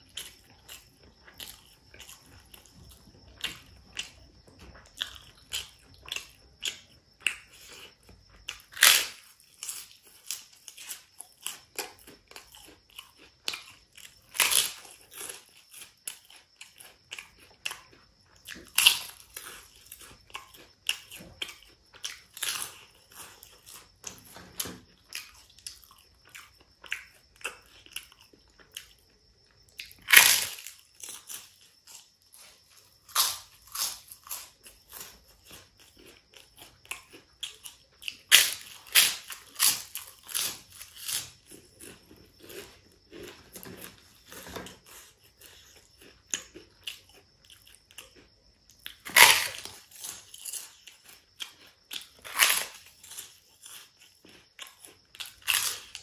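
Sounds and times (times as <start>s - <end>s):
crunching crisp papad: 49.0s - 50.8s.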